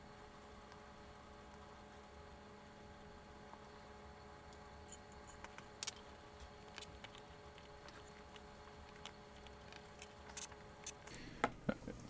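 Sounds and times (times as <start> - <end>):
small metal parts clicking: 4.8 - 11.1.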